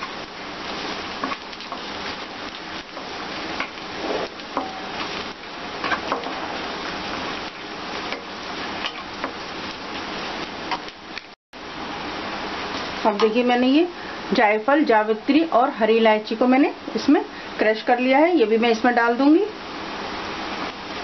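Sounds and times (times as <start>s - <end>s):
onions sizzling in hot oil: 0.0s - 21.0s
wooden spatula scraping a pan: 2.9s - 7.0s.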